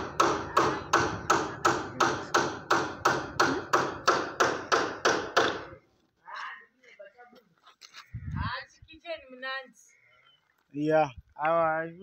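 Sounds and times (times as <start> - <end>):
rhythmic sharp knocking: 0.0 - 5.6.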